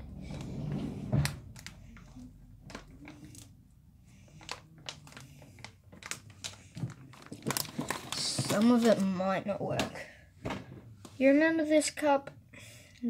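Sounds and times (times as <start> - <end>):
plastic packet crinkling: 4.3 - 9.2.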